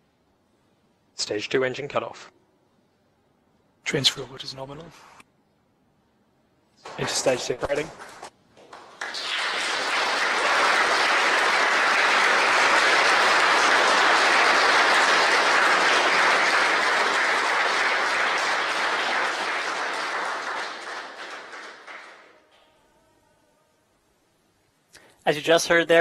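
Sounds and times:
people applauding: 0:06.8 - 0:22.6.

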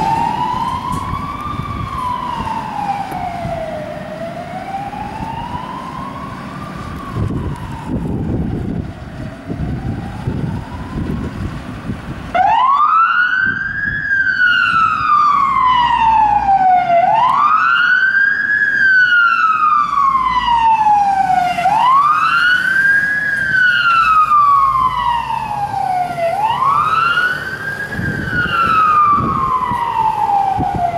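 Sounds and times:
low engine rumble: 0:00.0 - 0:12.4
fire engine siren wailing: 0:00.0 - 0:30.9.

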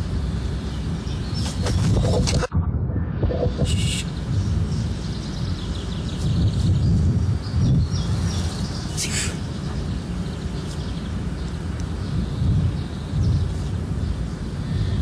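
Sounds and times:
steady low rumble: 0:00.0 - 0:15.0
birds chirping faintly: 0:03.3 - 0:15.0.

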